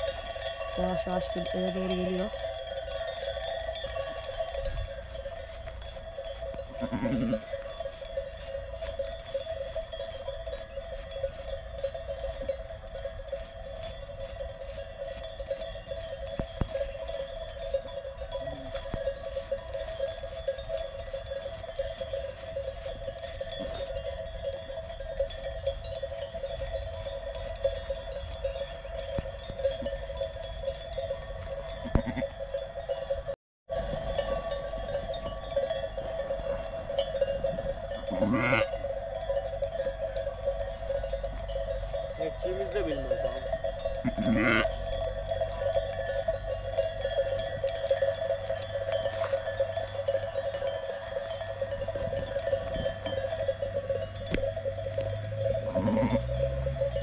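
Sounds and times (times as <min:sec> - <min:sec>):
sheep bells jangling: 0:00.0 - 0:57.0
sheep bleating: 0:06.7 - 0:07.6, 0:31.8 - 0:32.4, 0:38.1 - 0:38.7, 0:44.0 - 0:44.8, 0:55.7 - 0:56.4.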